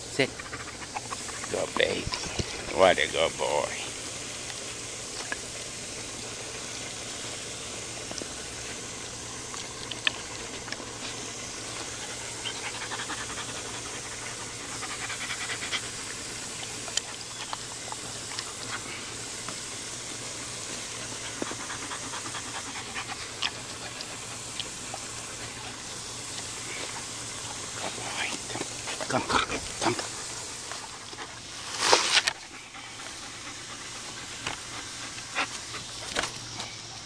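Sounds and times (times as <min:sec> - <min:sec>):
background hiss: 0:00.0 - 0:37.0
dog panting: 0:00.1 - 0:03.0, 0:09.8 - 0:31.6, 0:32.4 - 0:36.7.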